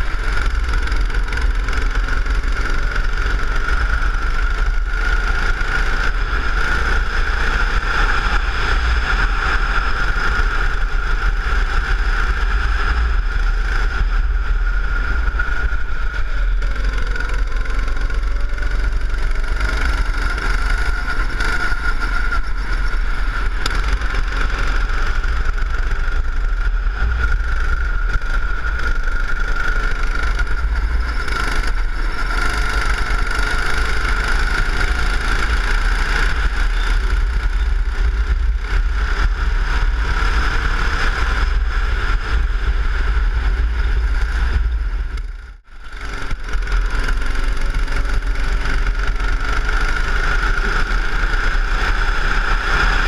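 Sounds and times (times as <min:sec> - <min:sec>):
go-kart engine whine: 0:00.0 - 0:53.0.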